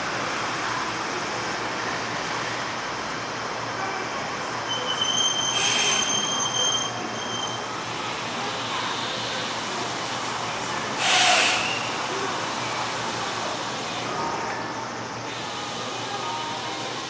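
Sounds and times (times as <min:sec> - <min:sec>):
electric train rumbling: 0:00.0 - 0:17.0
high thin squeal: 0:04.7 - 0:07.7, 0:11.0 - 0:12.0.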